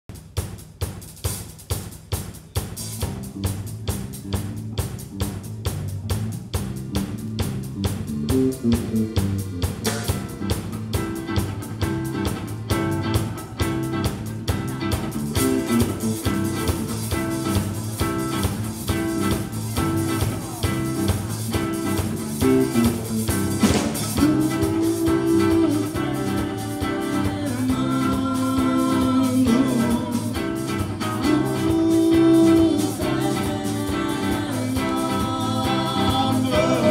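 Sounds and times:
drum kit beat: 0:00.0 - 0:36.9
bass guitar: 0:01.2 - 0:36.9
electric guitar: 0:02.9 - 0:36.9
accordion: 0:08.5 - 0:36.9.

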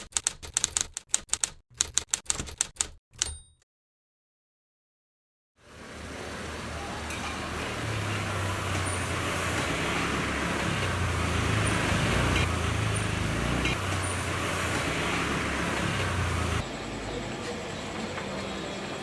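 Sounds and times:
hum of passing vehicles: 0:05.6 - 0:19.0.

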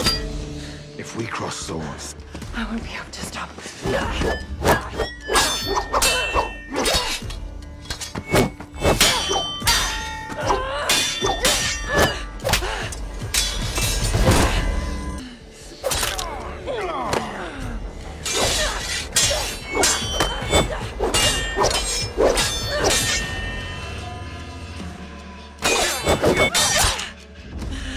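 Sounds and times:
steel swords clashing: 0:00.0 - 0:00.4, 0:03.9 - 0:15.0, 0:18.2 - 0:24.0, 0:25.6 - 0:27.1.

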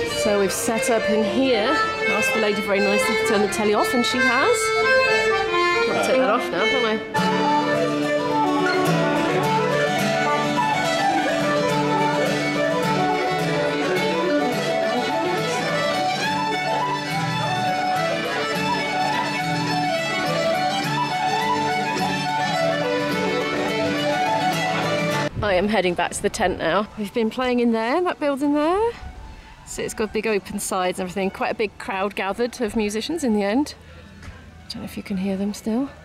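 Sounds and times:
banjo: 0:00.0 - 0:25.3
button accordion: 0:00.0 - 0:25.3
guitar strumming: 0:00.0 - 0:28.1
fiddle: 0:00.0 - 0:32.8.

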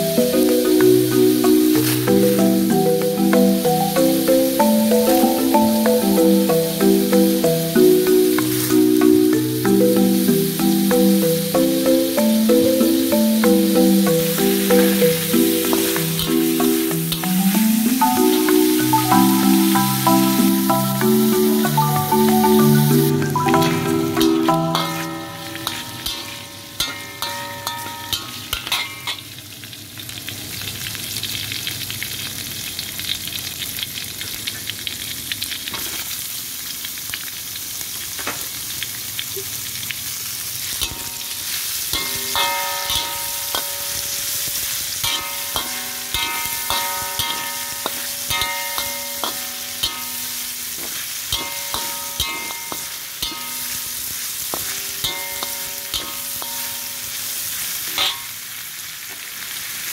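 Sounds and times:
pan ringing: 0:00.0 - 0:29.2, 0:40.8 - 0:58.4
food sizzling in oil: 0:00.0 - 0:59.9
metal spoon scraping a pan: 0:24.7 - 0:29.2, 0:40.8 - 0:58.3.

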